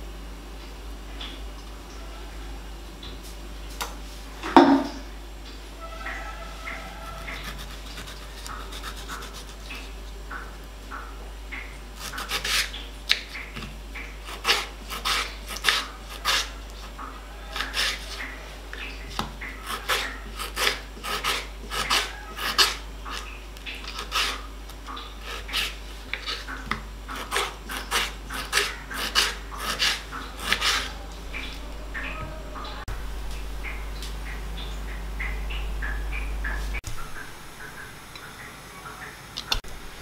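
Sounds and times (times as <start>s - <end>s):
knife cutting on wooden board: 14.3s - 16.6s, 17.5s - 18.2s, 19.2s - 24.4s, 25.2s - 32.2s.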